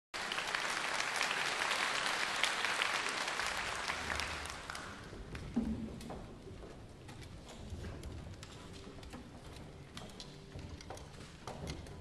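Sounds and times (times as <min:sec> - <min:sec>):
audience applauding: 0:00.2 - 0:05.1.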